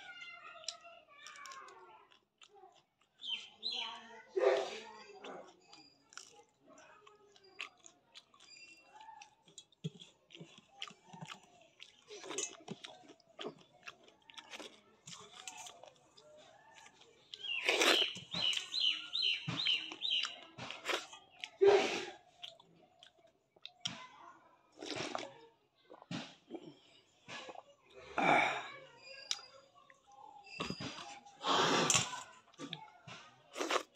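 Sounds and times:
chewing and crunching chilli: 0.0 - 28.1, 29.0 - 33.9.

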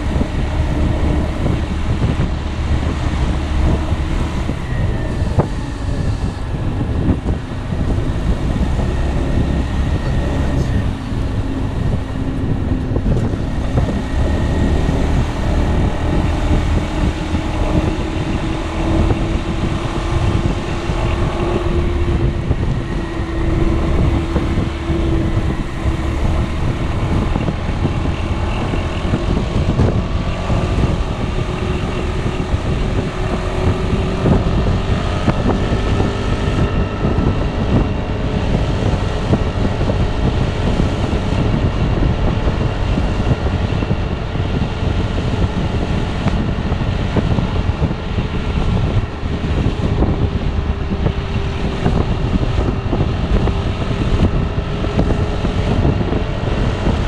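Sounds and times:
wind rumble on microphone: 0.0 - 57.0.

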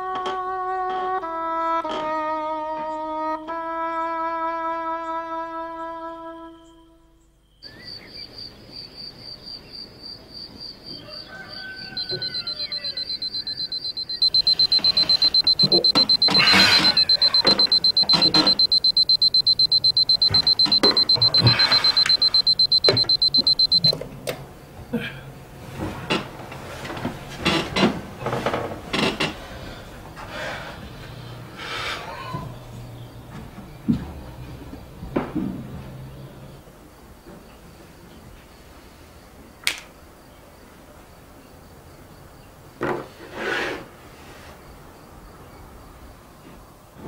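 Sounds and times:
alarm clock ringing: 12.0 - 23.9.

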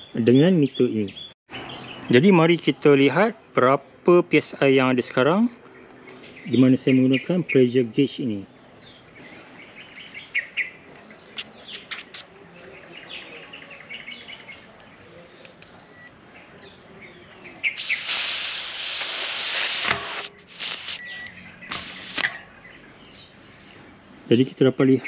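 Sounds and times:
birds chirping faintly: 0.0 - 19.7, 20.3 - 25.0
air hissing from tyre valve: 17.8 - 22.2.

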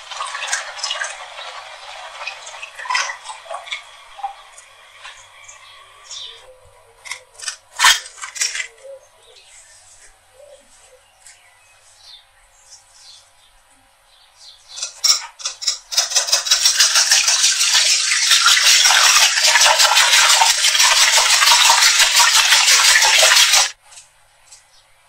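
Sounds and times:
whisk clattering in metal bowl: 14.8 - 23.8
whisk clinking on bowl: 15.4 - 23.7.

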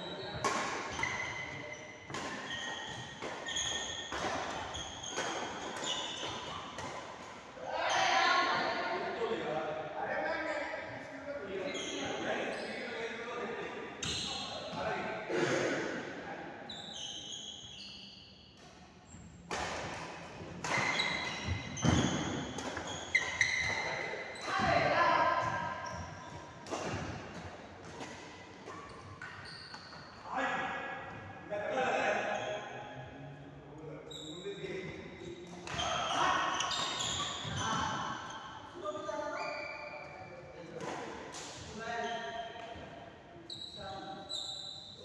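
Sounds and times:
shoes squeaking on court: 0.0 - 7.3, 11.6 - 13.0, 14.0 - 14.8, 16.7 - 20.0, 20.6 - 30.2, 34.1 - 45.0
racket hitting shuttlecock: 0.4 - 7.4, 19.5 - 24.7.

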